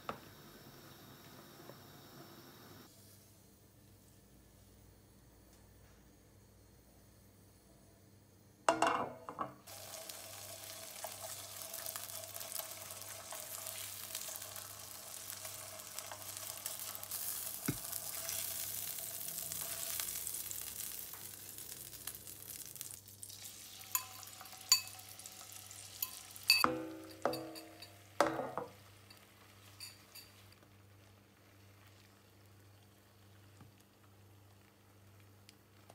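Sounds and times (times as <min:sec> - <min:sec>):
butter sizzling in a frying pan: 0:09.7 - 0:26.6
sharp clinks and knocks: 0:26.0 - 0:28.8.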